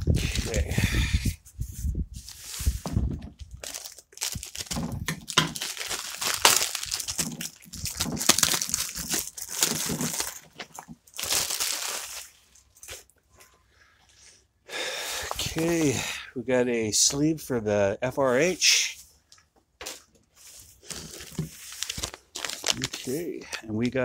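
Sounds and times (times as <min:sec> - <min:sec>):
plastic bag crinkling: 0:00.0 - 0:00.7, 0:02.3 - 0:13.1, 0:20.4 - 0:24.0.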